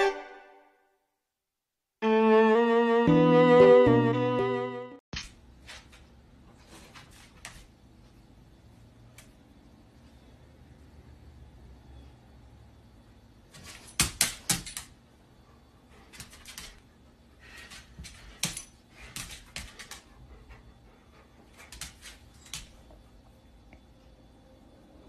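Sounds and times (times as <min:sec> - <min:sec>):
dog claws clicking on floor: 0:13.6 - 0:15.0, 0:16.1 - 0:16.9, 0:17.6 - 0:20.1, 0:21.6 - 0:22.8.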